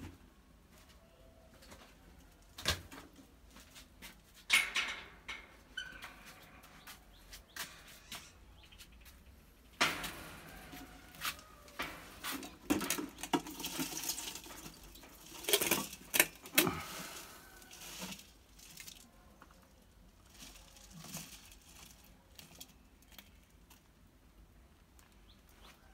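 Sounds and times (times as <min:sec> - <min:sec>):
metal pot scraping and rattling: 0:09.8 - 0:19.1, 0:20.2 - 0:22.7.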